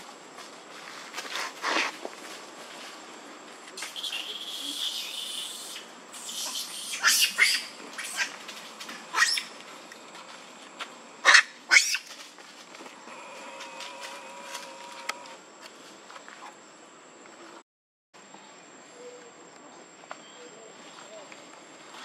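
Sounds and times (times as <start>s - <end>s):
baby monkey crying: 4.0s - 8.3s.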